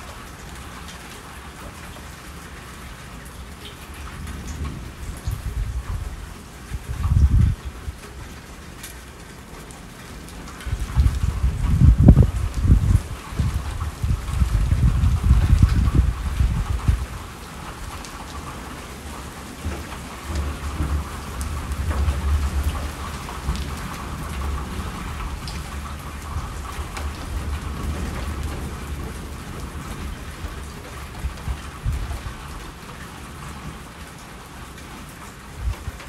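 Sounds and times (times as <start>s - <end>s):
steady rain falling: 0.0s - 36.0s
low roll of thunder: 4.0s - 8.0s, 10.7s - 17.2s, 19.6s - 32.6s.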